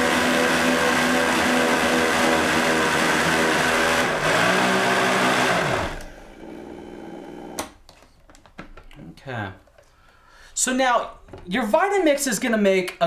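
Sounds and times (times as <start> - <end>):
blender motor running: 0.0 - 7.6
motor spinning down whine: 0.0 - 7.6.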